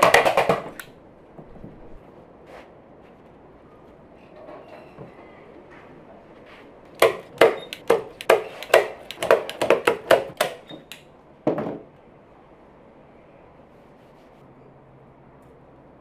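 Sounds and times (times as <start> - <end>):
staple gun clacks: 7.0 - 11.1.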